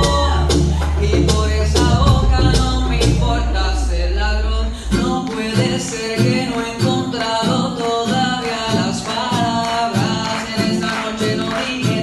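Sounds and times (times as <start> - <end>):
music with steady beat: 0.0 - 8.4
man singing into microphone: 0.0 - 12.0.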